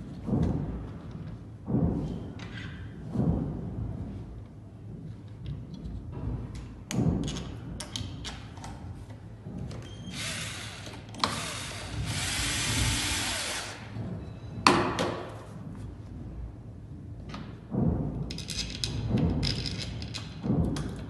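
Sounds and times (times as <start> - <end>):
cordless drill driving screws: 10.1 - 13.8.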